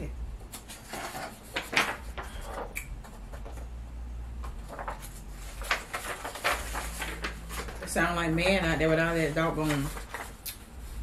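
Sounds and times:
rustling and knocks at a table: 0:00.7 - 0:03.8.

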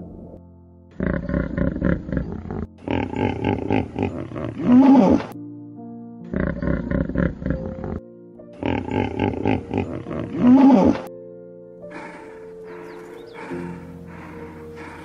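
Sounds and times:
soft background music: 0:00.0 - 0:15.0
hippopotamus grunting: 0:00.9 - 0:05.4, 0:06.3 - 0:08.0, 0:08.6 - 0:11.1, 0:11.9 - 0:15.0.

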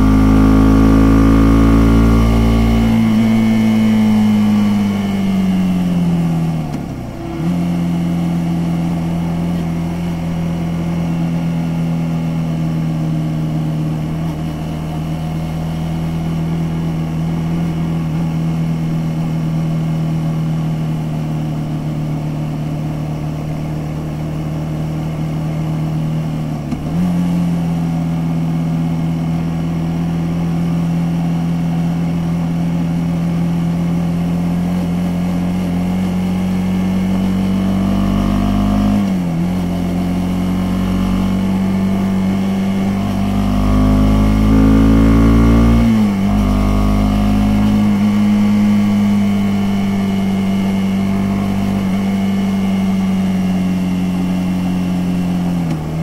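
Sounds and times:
motorcycle engine pulling steadily: 0:00.0 - 0:56.0.

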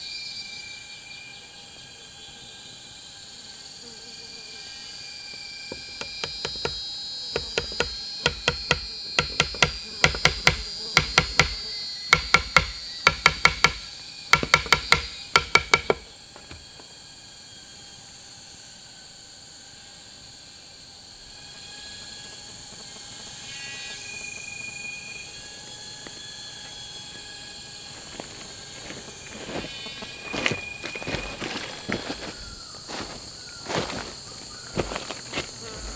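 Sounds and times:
steady high-pitched hiss: 0:00.0 - 0:35.9
sharp knocks: 0:05.7 - 0:06.8, 0:07.4 - 0:16.6.

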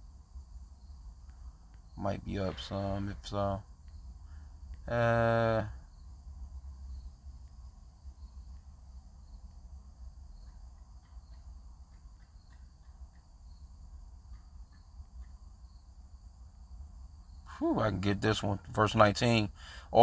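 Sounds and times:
faint ticks: 0:01.2 - 0:02.7, 0:03.8 - 0:04.9, 0:08.3 - 0:08.8, 0:10.4 - 0:15.7.

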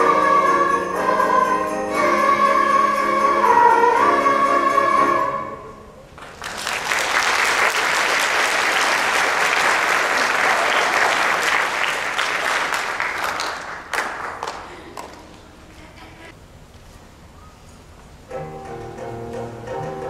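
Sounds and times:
audience applauding: 0:06.2 - 0:15.4.

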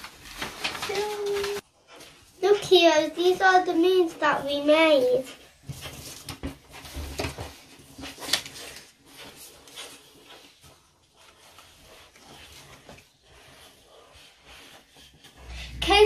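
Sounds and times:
paper card rustling and sliding: 0:00.0 - 0:02.2, 0:05.6 - 0:15.5.

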